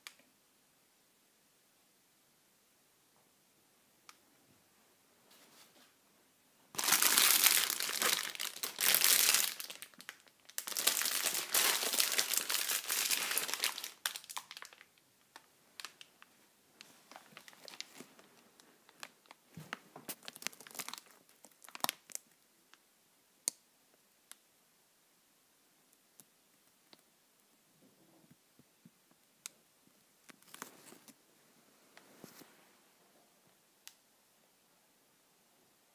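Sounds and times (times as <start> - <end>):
plastic crumpling and rustling: 6.8 - 22.3, 30.3 - 31.2.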